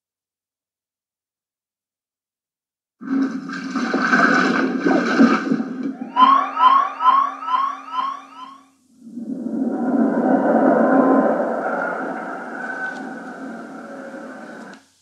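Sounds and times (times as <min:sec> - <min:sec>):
rush of water effect: 0:03.0 - 0:07.2
steady low hum: 0:04.0 - 0:15.0
rising electronic chirps: 0:06.0 - 0:08.7.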